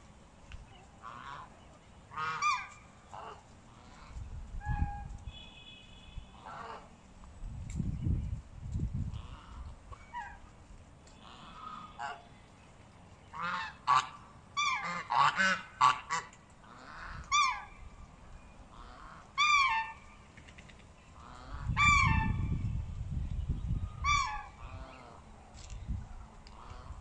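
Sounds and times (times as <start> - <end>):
hens squawking: 1.0 - 4.9, 11.2 - 12.2, 13.4 - 17.8, 18.7 - 20.1, 21.2 - 22.5, 24.0 - 25.2.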